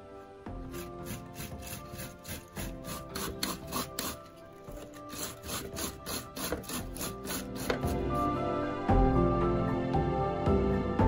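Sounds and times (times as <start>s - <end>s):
cabbage grating rasps: 0.6s - 8.3s.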